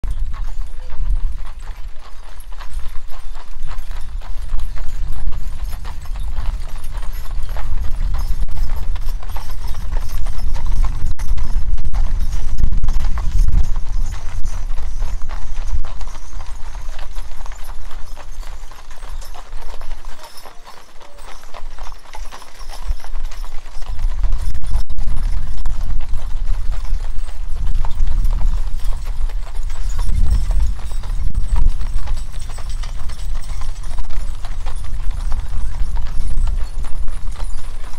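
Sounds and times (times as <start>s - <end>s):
horse hooves on gravel: 0.0s - 37.9s
wagons rumbling: 0.0s - 37.9s.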